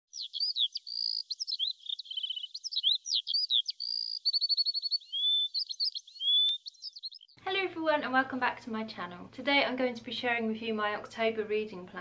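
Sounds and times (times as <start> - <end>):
songbirds chirping and trilling: 0.1 - 7.4.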